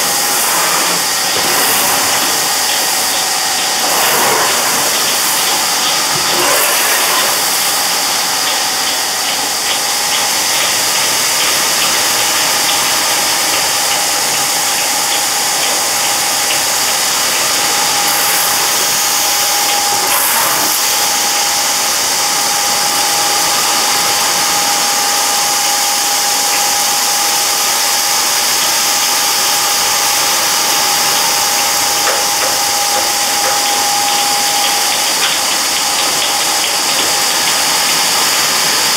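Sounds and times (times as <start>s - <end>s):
machinery hum: 0.0s - 38.9s
steady whine: 0.0s - 38.9s.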